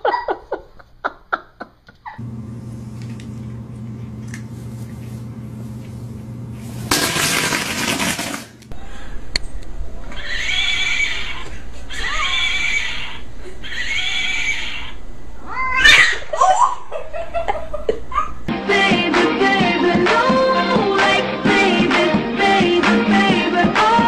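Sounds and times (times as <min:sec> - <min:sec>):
cat yowling: 0:10.1 - 0:16.5.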